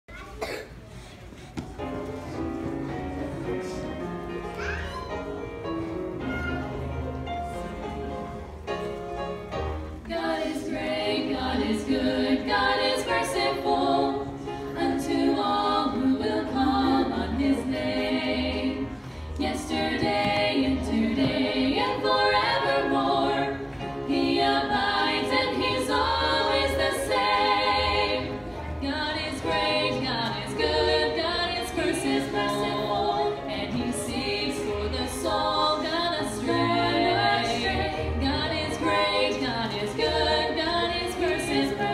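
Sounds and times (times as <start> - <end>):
women singing hymn in harmony: 10.0 - 41.9.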